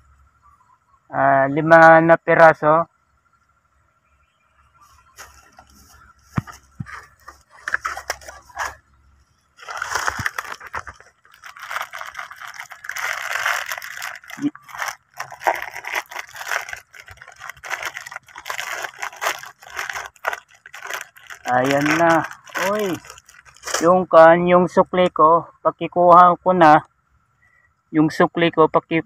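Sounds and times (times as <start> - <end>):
plastic packet crinkling: 6.5 - 8.8, 9.6 - 23.9.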